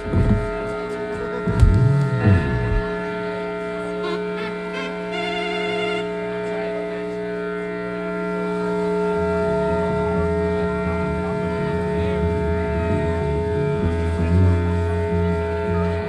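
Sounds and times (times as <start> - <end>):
bass guitar line: 0.0 - 3.1, 9.2 - 16.0
droning band chord: 0.0 - 16.0.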